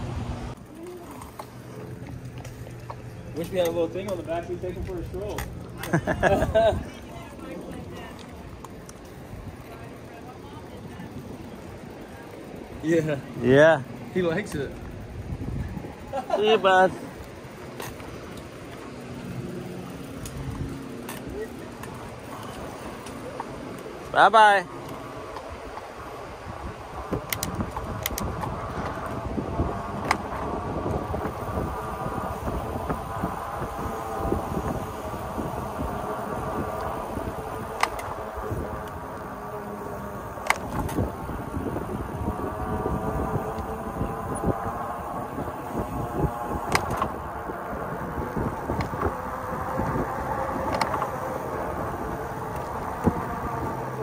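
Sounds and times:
e-bike rolling noise: 0.0 - 54.0
wind rushing over microphone: 14.1 - 18.3, 24.6 - 54.0
sharp clicks or rattles: 37.7 - 38.2, 46.6 - 47.3.

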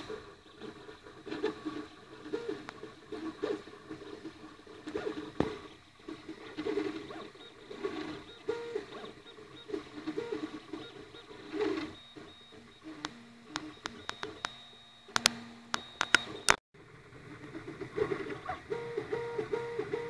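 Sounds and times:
stepper motors whining: 0.0 - 20.0
sharp clicks: 6.6 - 16.6.

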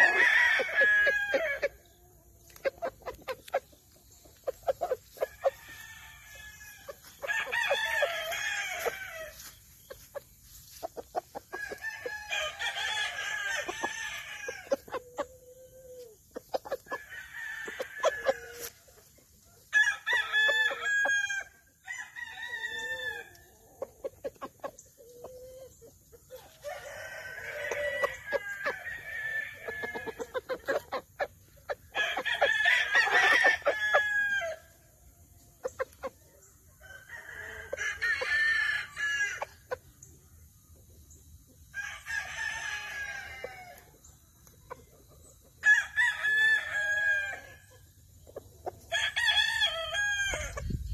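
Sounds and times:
roosters crowing: 0.0 - 3.6, 4.4 - 35.0, 35.7 - 39.8, 41.7 - 44.0, 45.6 - 47.9, 48.7 - 50.9
chicken clucking: 0.0 - 19.7, 23.3 - 34.1, 35.2 - 38.4, 43.0 - 45.6.

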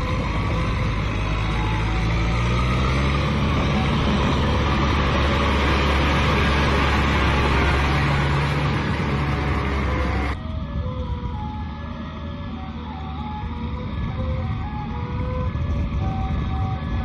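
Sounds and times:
tractor diesel engine under load: 0.0 - 10.5.

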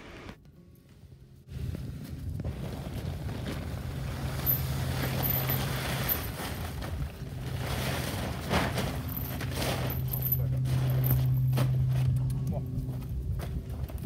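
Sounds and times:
plastic tarp rustling: 1.5 - 11.2.

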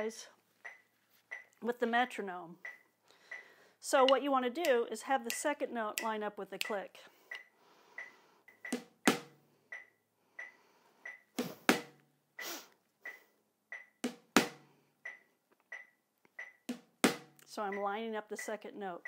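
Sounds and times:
metronome beeps: 0.6 - 1.6, 2.6 - 3.5, 6.6 - 8.9, 9.7 - 11.4, 13.0 - 14.0, 15.0 - 16.7, 17.7 - 18.6.

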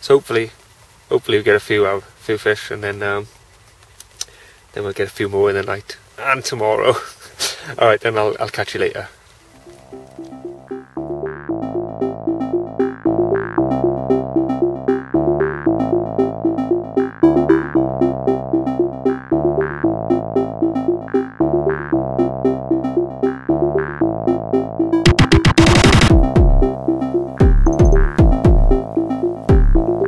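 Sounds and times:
electronic synthesizer music: 9.5 - 30.0.

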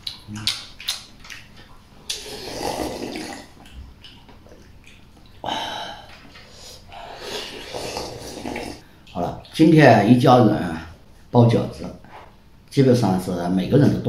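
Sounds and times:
person slurping soup: 2.1 - 3.7, 6.4 - 8.8.

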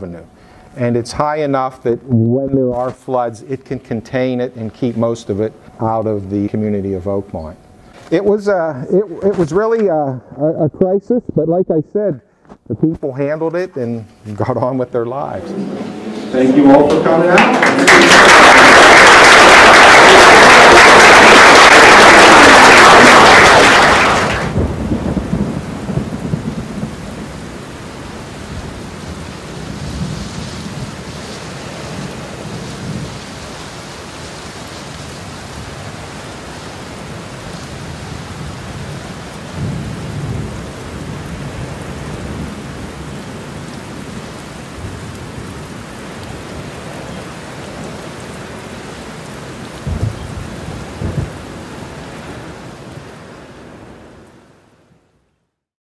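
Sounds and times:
steady rain: 0.0 - 11.0, 12.0 - 55.4
low thunder rolls: 15.2 - 27.6, 49.8 - 51.5
sharp thunderclaps: 15.4 - 27.5, 39.5 - 41.6, 49.8 - 51.4.

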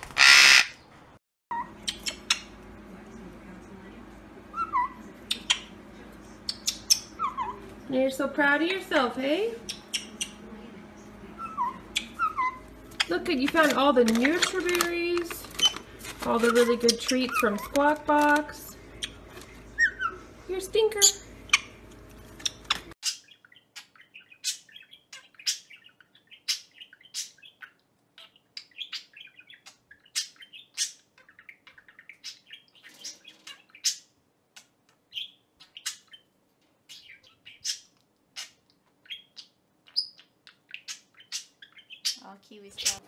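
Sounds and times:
budgerigar chirping: 0.1 - 0.8, 6.4 - 7.6, 9.6 - 10.4, 22.4 - 34.1, 35.1 - 36.3, 36.9 - 43.0.

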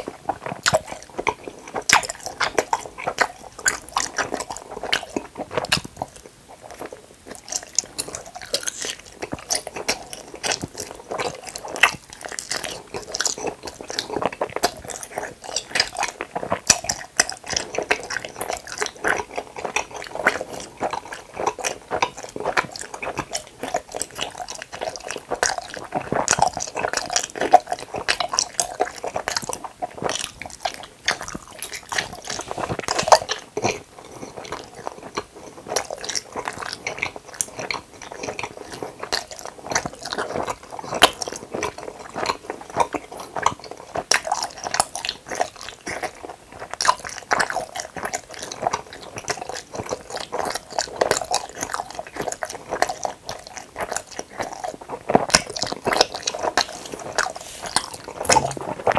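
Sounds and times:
chewing gummy candy: 0.0 - 58.9
mouth clicks and smacks: 0.0 - 58.9.

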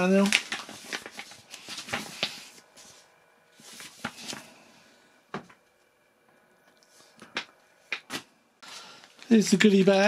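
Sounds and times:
paper booklet rustling: 0.0 - 4.6.

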